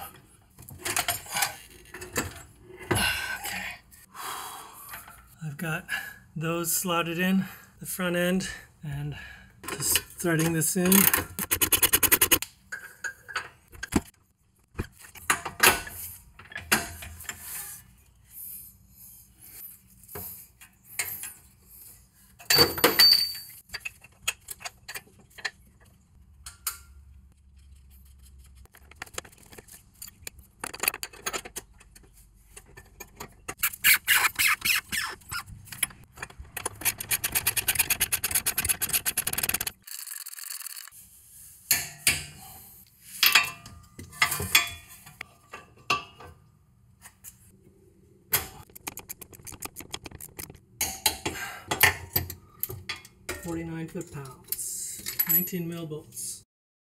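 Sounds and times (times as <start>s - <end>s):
metal tools clinking and scraping: 22.4s - 25.6s, 51.8s - 55.6s
rapid ratchet clicking: 36.6s - 40.9s, 48.6s - 50.6s.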